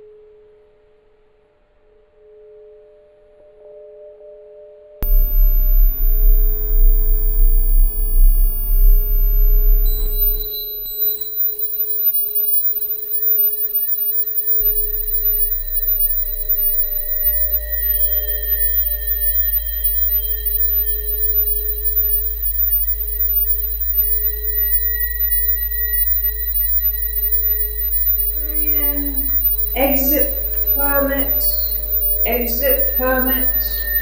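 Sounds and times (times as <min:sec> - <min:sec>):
deep rumble: 0:05.0 - 0:11.2, 0:14.3 - 0:34.0
electronic sine tones: 0:05.0 - 0:34.0
low hum: 0:05.0 - 0:34.0.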